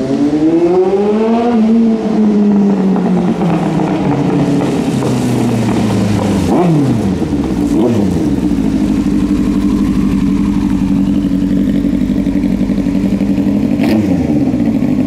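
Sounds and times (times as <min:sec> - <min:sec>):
motorcycle engine idling: 0:04.9 - 0:15.0.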